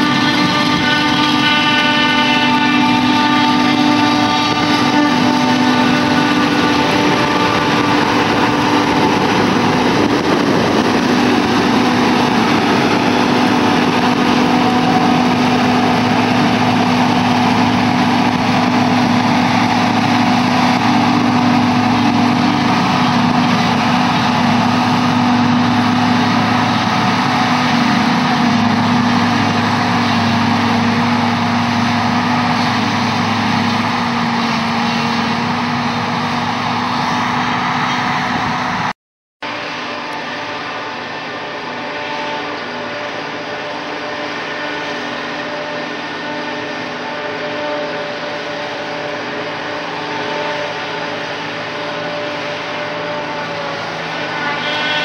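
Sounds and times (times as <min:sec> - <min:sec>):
forage harvester chopping grass: 0:00.0 - 0:38.8, 0:39.5 - 0:55.0.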